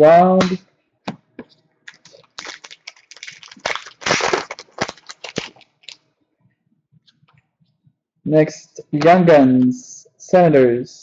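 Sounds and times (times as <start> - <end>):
plastic packaging crinkling: 1.9 - 6.0.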